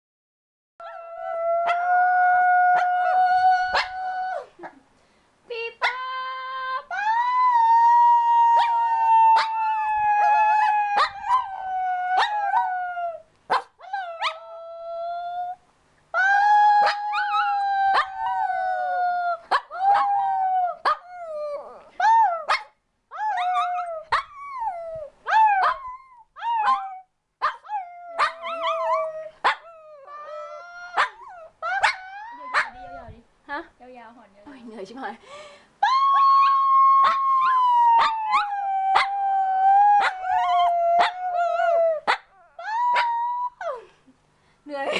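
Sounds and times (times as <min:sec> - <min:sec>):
puppy howling: 0:00.8 - 0:04.5, 0:06.9 - 0:13.2, 0:16.2 - 0:22.5, 0:23.1 - 0:33.1, 0:35.8 - 0:43.8
person making howling cries: 0:16.2 - 0:20.8, 0:30.0 - 0:33.1, 0:35.8 - 0:44.0.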